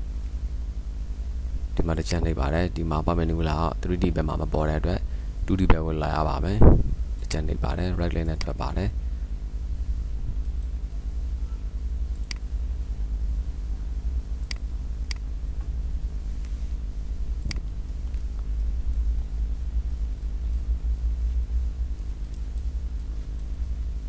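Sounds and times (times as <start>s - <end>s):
low electrical hum: 0.0s - 24.0s
computer mouse clicks: 12.2s - 12.5s, 14.4s - 15.3s, 17.4s - 18.3s.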